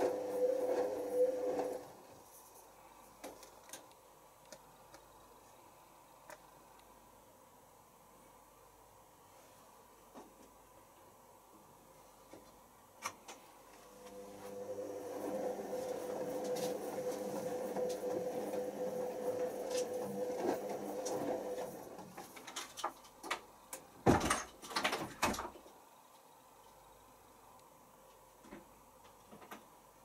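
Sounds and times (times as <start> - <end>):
washing machine motor whining: 0.0 - 2.1, 13.9 - 22.2.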